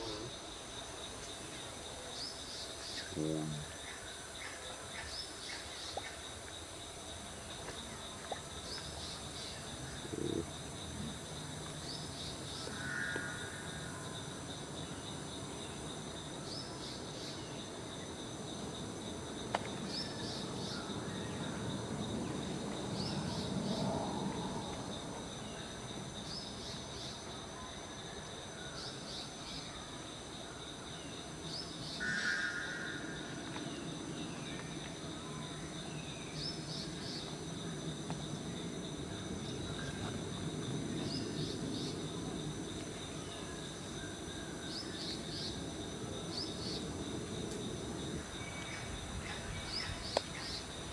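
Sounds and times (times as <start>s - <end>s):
insects droning: 0.0s - 50.9s.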